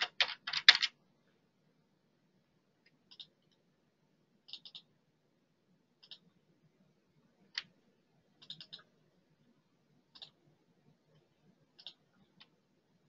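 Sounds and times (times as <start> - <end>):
computer mouse clicks: 3.1 - 3.6, 4.5 - 4.9, 6.0 - 6.3, 8.4 - 8.9, 10.1 - 10.4, 11.1 - 12.6.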